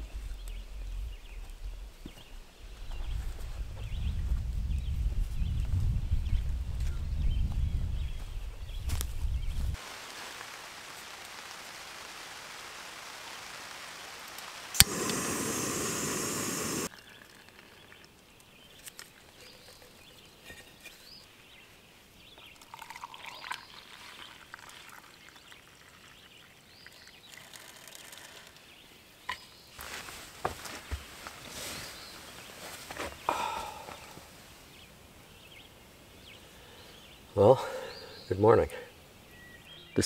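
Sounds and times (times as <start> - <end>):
camping stove hissing: 9.8 - 16.9
hot water pouring: 9.8 - 18.1, 22.4 - 28.6.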